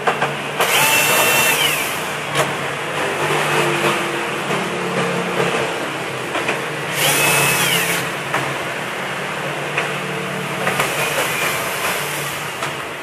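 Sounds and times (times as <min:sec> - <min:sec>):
cordless drill motor whine: 0:00.6 - 0:02.0, 0:06.9 - 0:08.1.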